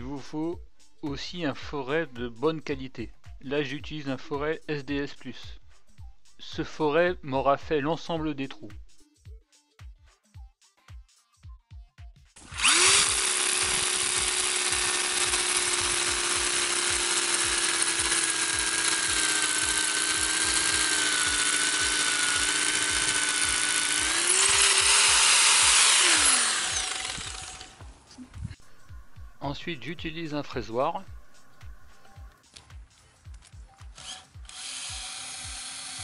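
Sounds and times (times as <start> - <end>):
hammer drill boring into concrete: 12.4 - 27.9, 33.9 - 36.0.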